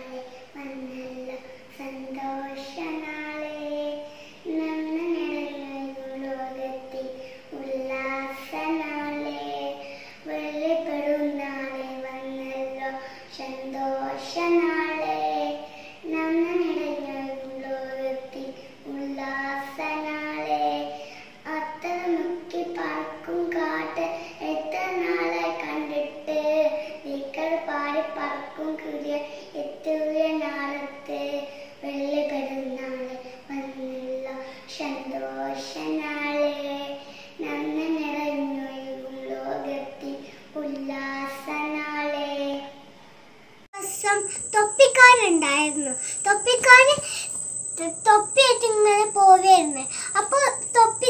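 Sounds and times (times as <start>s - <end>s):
girl singing unaccompanied: 0.0s - 42.8s, 43.8s - 51.0s.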